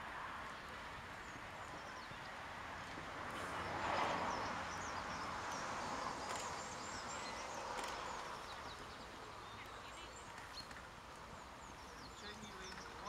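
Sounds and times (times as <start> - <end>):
small birds chirping: 3.6 - 13.0.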